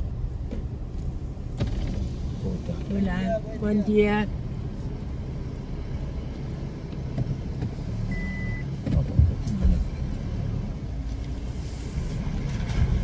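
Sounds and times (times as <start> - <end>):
car engine and tyres rumbling: 0.0 - 13.0
short high beep: 8.1 - 8.6.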